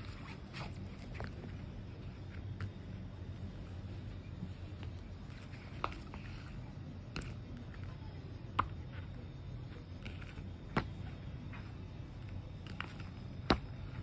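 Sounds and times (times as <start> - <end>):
low steady hum: 0.0 - 14.0
book covers tapping and knocking: 5.3 - 6.5, 9.8 - 14.0.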